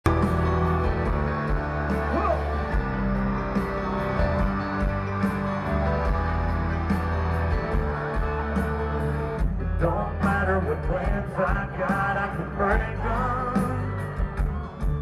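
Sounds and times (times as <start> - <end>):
country-rock band playing: 0.0 - 15.0
man singing: 9.8 - 14.0.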